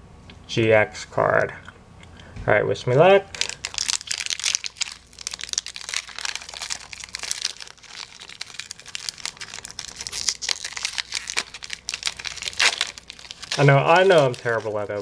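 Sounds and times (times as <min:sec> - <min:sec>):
foil wrapper tearing and crinkling: 0:03.3 - 0:15.0.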